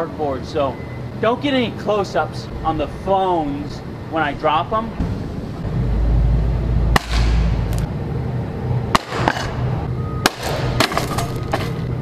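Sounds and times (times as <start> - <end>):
objects crashing onto concrete: 10.3 - 11.8.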